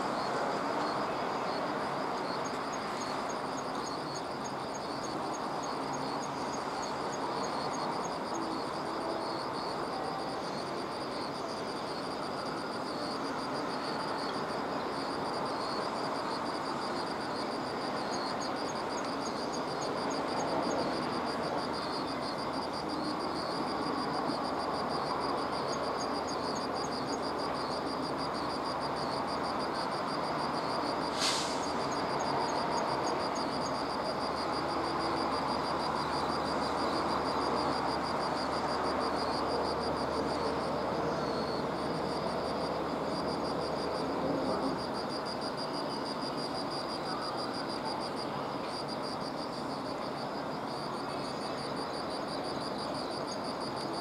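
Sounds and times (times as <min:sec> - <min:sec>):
insects trilling: 0:00.0 - 0:54.0
quick repeated insect chirps: 0:15.0 - 0:47.9.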